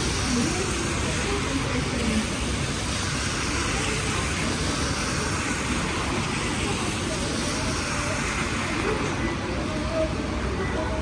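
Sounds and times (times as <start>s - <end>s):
low engine noise: 0.0s - 11.0s
rain hiss: 0.0s - 11.0s
traffic on wet roads: 0.0s - 11.0s.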